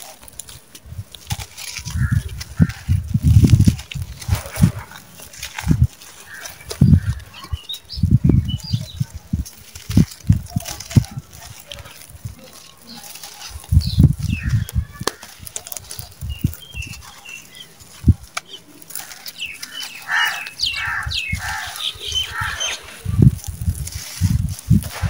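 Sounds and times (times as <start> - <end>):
hands crushing dry dirt clods: 0.0 - 25.0
animal calls: 10.6 - 23.1.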